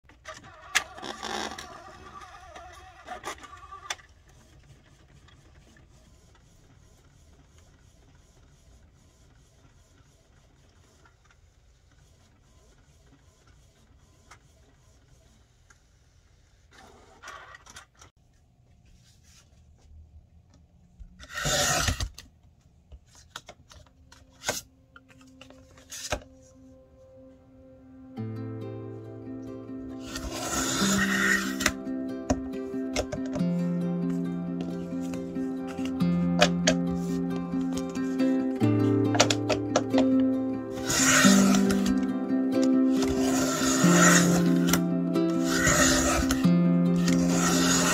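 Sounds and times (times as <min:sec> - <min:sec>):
inkjet printer whirring: 0:00.3 - 0:15.9, 0:30.0 - 0:33.4, 0:40.7 - 0:42.0, 0:42.9 - 0:44.8, 0:45.4 - 0:46.4, 0:47.0 - 0:47.9
paper trimmer swipe: 0:47.0 - 0:47.9.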